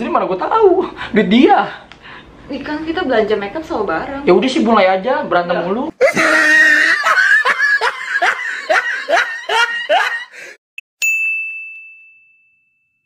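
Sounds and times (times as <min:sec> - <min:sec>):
person laughing: 0:06.0 - 0:10.6
bright ringing ding: 0:11.0 - 0:13.0.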